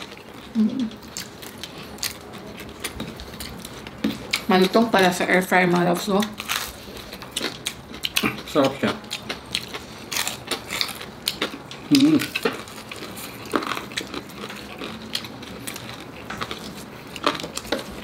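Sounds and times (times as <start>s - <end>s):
crunching of crispy pork: 0.0s - 18.0s
person humming: 0.6s - 0.9s, 11.9s - 12.3s.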